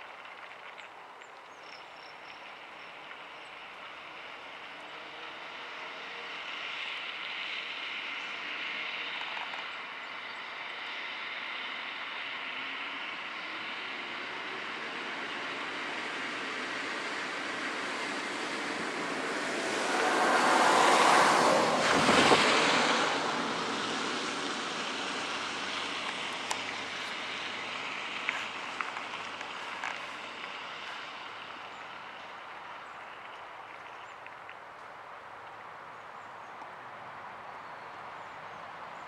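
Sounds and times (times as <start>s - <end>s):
faint train locomotive hum: 1.8s - 39.0s
wind rushing over microphone: 17.4s - 30.3s
faint clicks: 28.2s - 32.3s, 33.0s - 35.7s.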